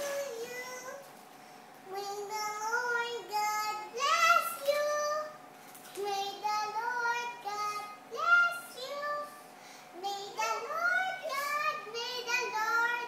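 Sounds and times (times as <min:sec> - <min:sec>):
girl singing a cappella: 0:00.0 - 0:01.2, 0:01.9 - 0:13.0.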